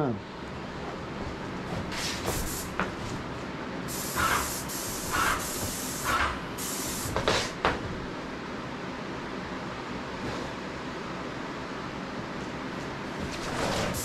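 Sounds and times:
paint sprayer gun hissing: 3.9 - 7.2.

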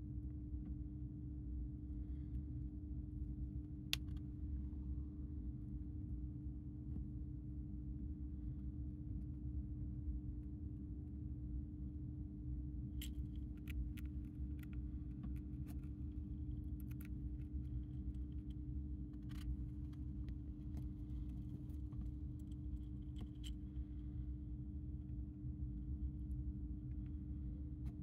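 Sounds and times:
steady low hum: 0.0 - 28.0
hamster crunching dry food: 12.9 - 24.0.

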